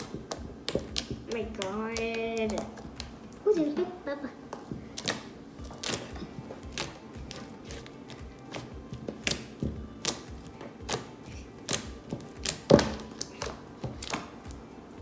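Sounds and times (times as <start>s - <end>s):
slime squished by hand: 4.5s - 7.9s, 8.5s - 14.4s.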